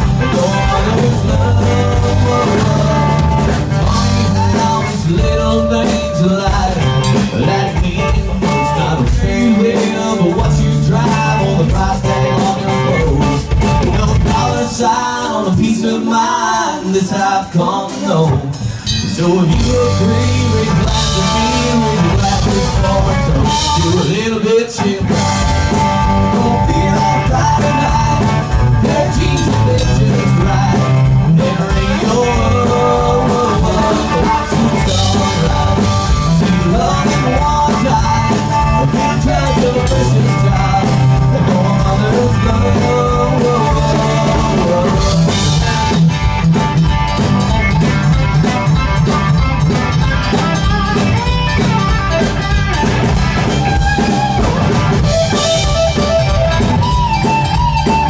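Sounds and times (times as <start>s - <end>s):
live country band playing: 0.0s - 58.0s.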